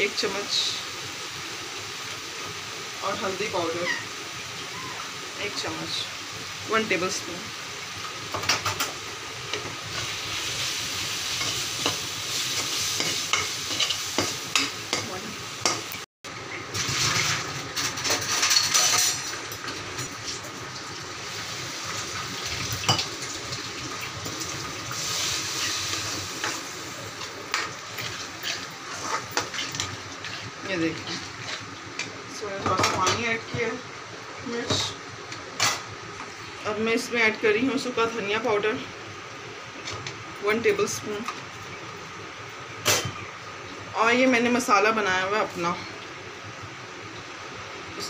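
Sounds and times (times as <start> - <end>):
onions sizzling in oil: 0.0 - 48.0
metal spatula scraping pan: 27.5 - 32.1.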